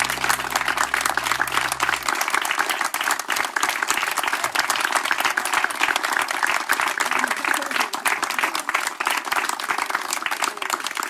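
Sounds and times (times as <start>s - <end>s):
band holding low note: 0.0s - 2.6s
audience applauding: 0.0s - 11.0s.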